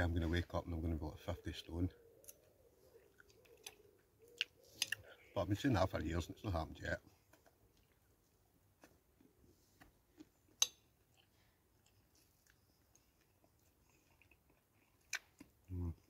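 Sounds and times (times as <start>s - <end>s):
faint chewing: 2.0s - 5.3s, 7.0s - 16.0s.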